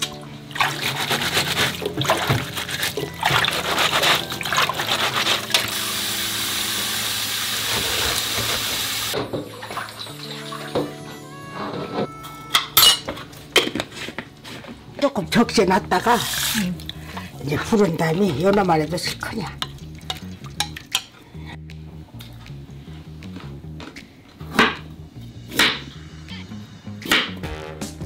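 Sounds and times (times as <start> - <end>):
water splashing in sink: 0.0 - 10.7, 17.6 - 21.1
background music: 0.0 - 28.0
tap running: 2.0 - 9.8.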